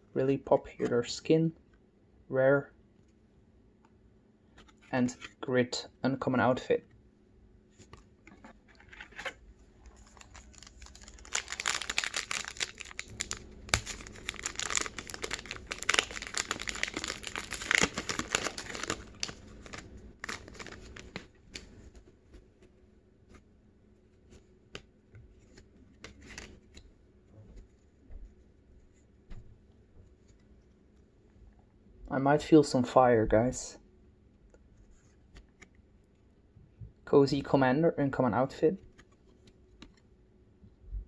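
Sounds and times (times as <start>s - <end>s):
foil wrapper tearing and crinkling: 10.1s - 21.2s.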